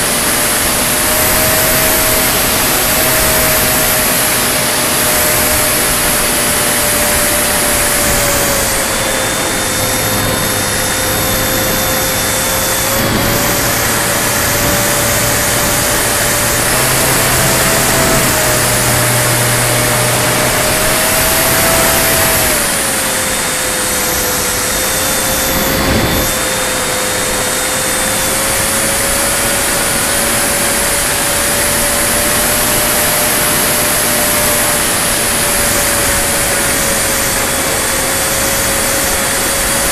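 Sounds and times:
model plane motor droning: 0:00.0 - 0:39.9
wind rushing: 0:01.4 - 0:23.0.

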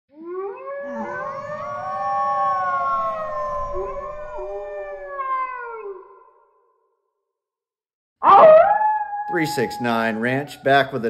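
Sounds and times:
wolves howling in chorus: 0:00.4 - 0:06.0, 0:08.2 - 0:10.5.

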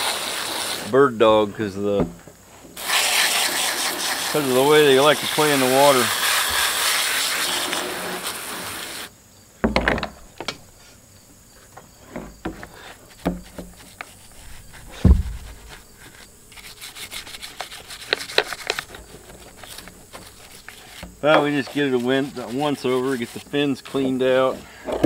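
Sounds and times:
water spraying from hose nozzle: 0:00.0 - 0:01.0, 0:02.8 - 0:09.1, 0:16.5 - 0:23.9
bristle brush scrubbing plastic: 0:02.8 - 0:09.1, 0:13.0 - 0:24.6
knocks of saw being handled: 0:17.4 - 0:21.6.

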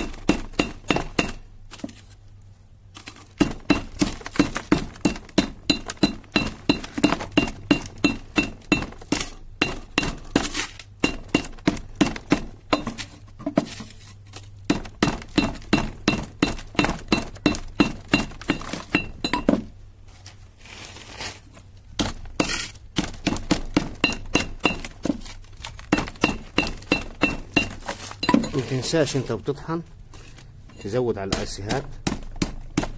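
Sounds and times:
pestle pounding in mortar: 0:00.0 - 0:01.6, 0:03.3 - 0:13.7, 0:14.6 - 0:19.7, 0:22.0 - 0:28.6, 0:31.2 - 0:32.9.

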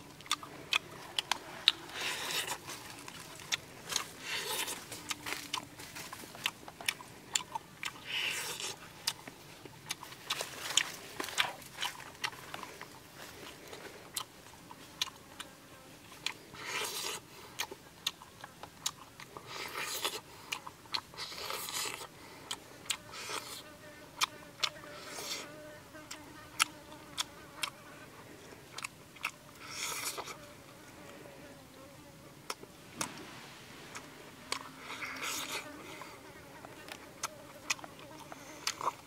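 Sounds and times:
faint steady hum: 0:00.0 - 0:39.0
person chewing with lip smacks: 0:00.2 - 0:12.7, 0:16.2 - 0:23.6, 0:28.7 - 0:30.4, 0:33.9 - 0:39.0.

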